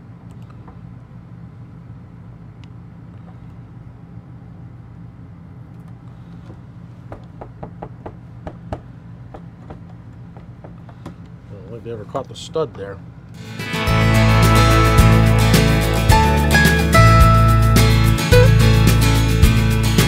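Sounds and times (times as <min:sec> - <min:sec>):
air conditioner droning: 0:00.0 - 0:20.0.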